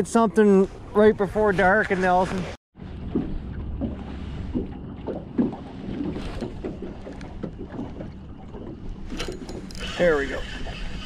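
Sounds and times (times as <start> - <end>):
water knocking against hull: 2.3 - 11.0
outboard motor running: 2.8 - 11.0.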